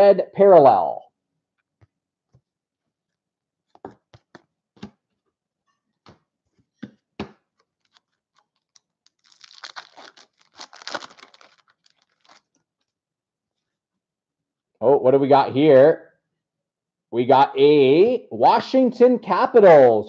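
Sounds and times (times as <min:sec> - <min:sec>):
foil wrapper crinkling and tearing: 0:07.8 - 0:12.9.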